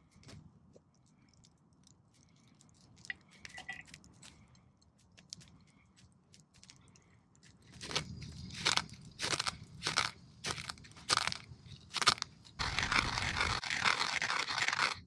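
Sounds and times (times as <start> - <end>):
faint crackling and clicks: 0.0 - 15.0
pestle grinding in wooden mortar: 7.7 - 15.0.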